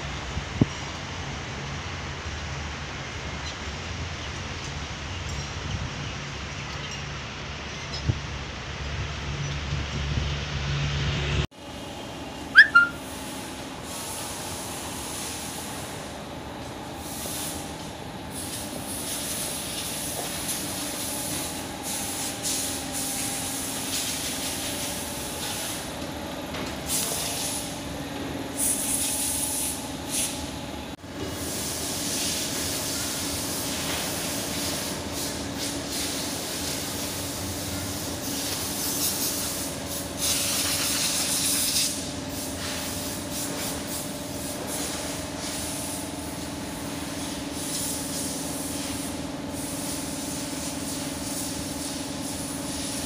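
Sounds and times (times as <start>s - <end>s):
short sharp squeak: 12.5s - 13.0s.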